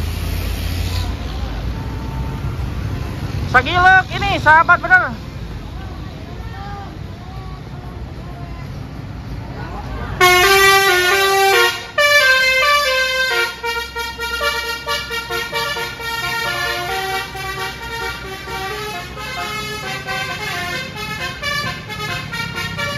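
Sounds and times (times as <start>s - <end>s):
multi-tone musical bus horn: 10.2s - 22.9s.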